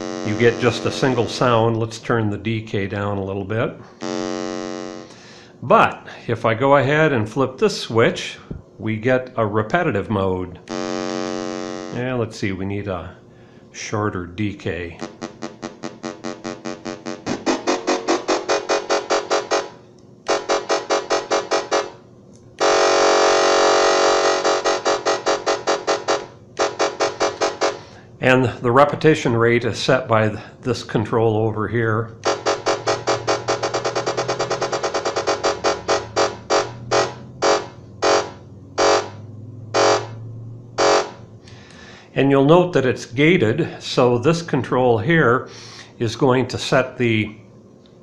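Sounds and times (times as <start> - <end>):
steady electronic tone: 0.0 - 1.8, 4.0 - 5.8, 10.7 - 12.4, 15.0 - 28.8, 32.2 - 41.4
fast electronic beeps: 15.0 - 22.0, 22.6 - 27.9, 32.2 - 39.2.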